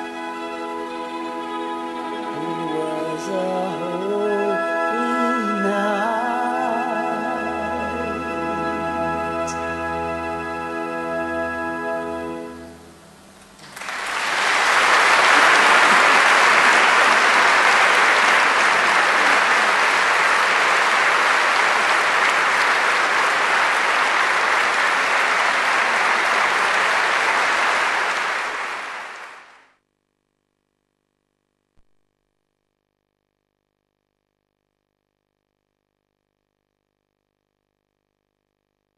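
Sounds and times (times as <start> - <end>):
audience applauding: 13.6 - 29.6.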